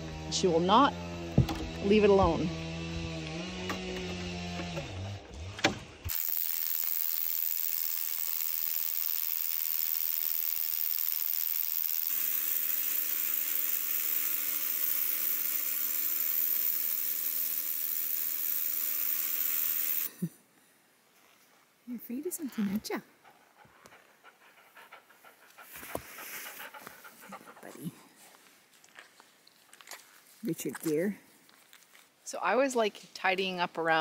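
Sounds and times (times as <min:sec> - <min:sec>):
motor-like drone: 0:00.0 - 0:20.1.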